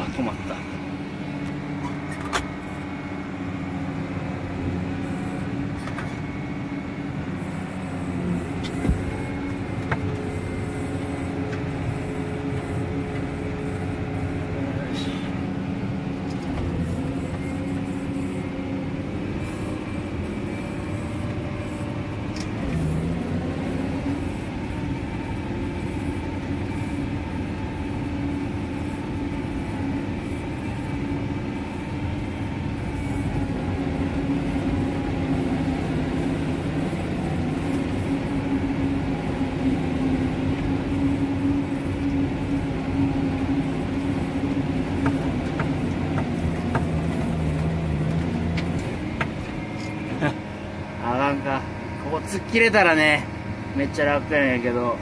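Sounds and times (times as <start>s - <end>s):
tractor engine under heavy load: 0.0s - 55.0s.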